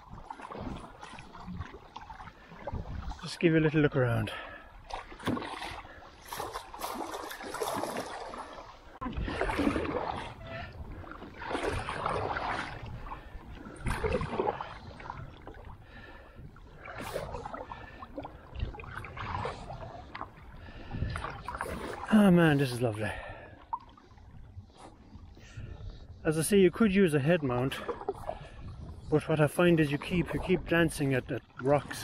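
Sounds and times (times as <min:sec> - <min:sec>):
paddle splashing in water: 0:00.0 - 0:25.8, 0:26.4 - 0:32.0
water washing along hull: 0:00.0 - 0:32.0.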